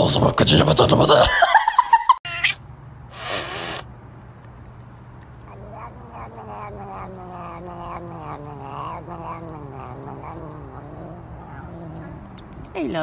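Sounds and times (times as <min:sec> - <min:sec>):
cat yowling: 0:02.2 - 0:02.6, 0:05.4 - 0:12.6.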